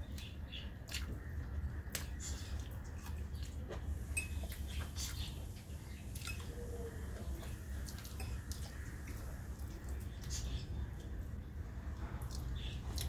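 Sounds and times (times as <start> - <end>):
chewing smacks: 7.4 - 11.2, 12.0 - 13.0.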